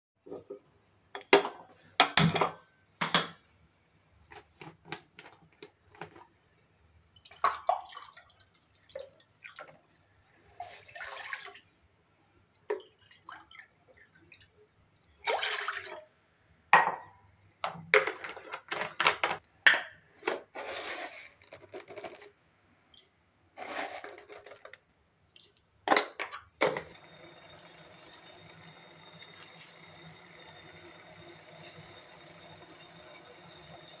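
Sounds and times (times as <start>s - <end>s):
water pouring into a pan: 7.1s - 11.7s, 12.8s - 16.1s, 26.9s - 34.0s.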